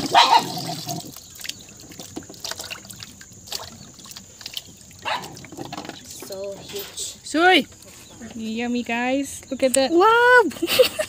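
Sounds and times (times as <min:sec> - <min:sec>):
water swish: 0:00.0 - 0:07.2
water sloshing in metal basin: 0:00.0 - 0:08.6
small splashes and clicks: 0:00.9 - 0:07.0.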